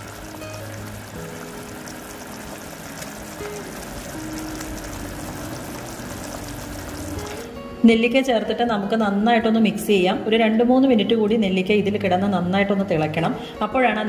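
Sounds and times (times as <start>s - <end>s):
gravy bubbling in pot: 0.0s - 7.5s
soft background music: 0.0s - 14.0s.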